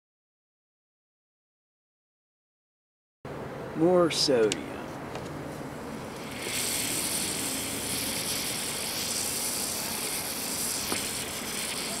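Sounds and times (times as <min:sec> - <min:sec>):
fizzing hiss: 0:06.1 - 0:12.0.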